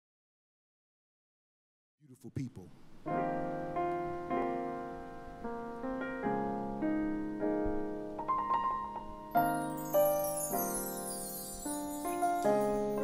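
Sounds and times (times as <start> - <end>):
piano chords ringing: 3.0 - 13.0.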